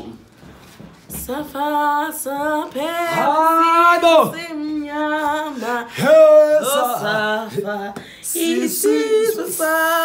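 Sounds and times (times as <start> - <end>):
voices singing sliding notes: 2.8 - 10.0.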